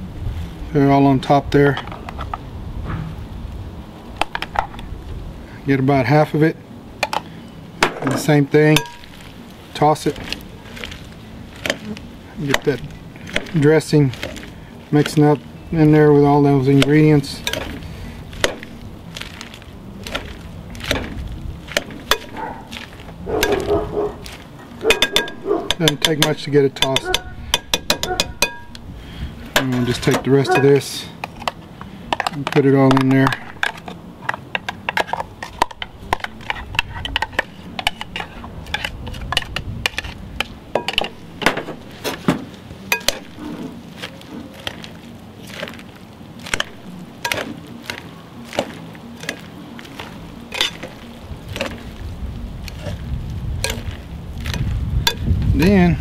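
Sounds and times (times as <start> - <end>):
metal tongs scraping glass bowl: 29.6 - 30.8, 50.5 - 51.7.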